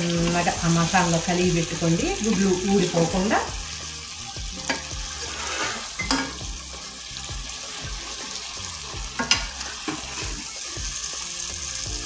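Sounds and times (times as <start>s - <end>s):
food sizzling in a pan: 0.0s - 12.0s
utensil knocking on pan: 6.0s - 6.5s, 9.1s - 10.1s.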